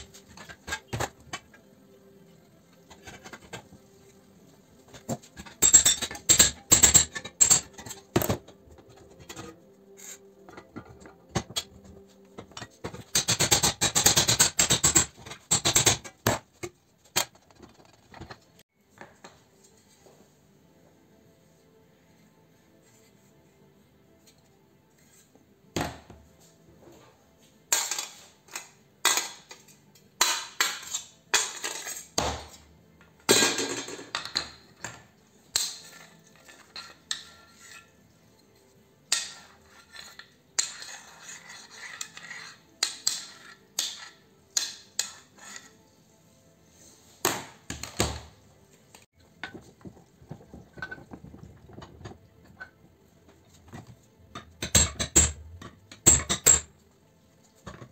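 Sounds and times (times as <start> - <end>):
sheet metal parts clinking: 5.0 - 9.6.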